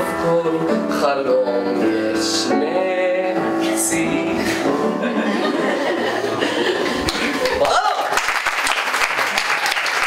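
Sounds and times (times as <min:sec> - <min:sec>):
man and woman singing duet: 0:00.0 - 0:05.4
upright piano accompaniment: 0:00.0 - 0:07.7.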